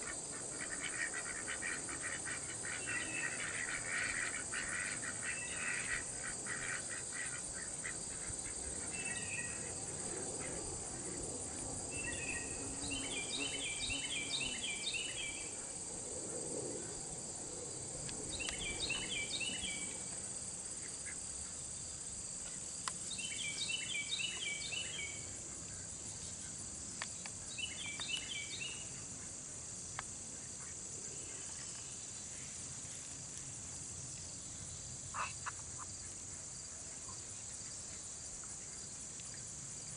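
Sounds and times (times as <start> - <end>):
crickets chirping: 0.0 - 39.9
songbird singing rapid notes: 12.0 - 15.5, 27.5 - 28.9.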